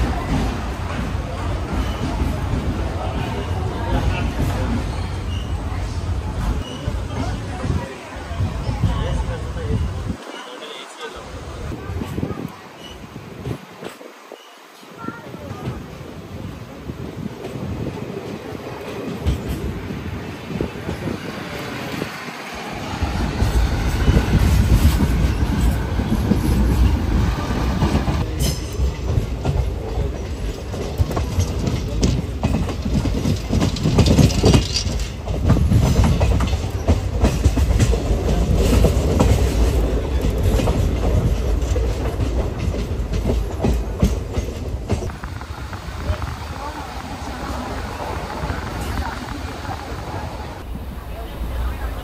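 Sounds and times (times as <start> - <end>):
train coaches rumbling: 0.0 - 52.0
wheels clattering over rail joints: 17.3 - 52.0.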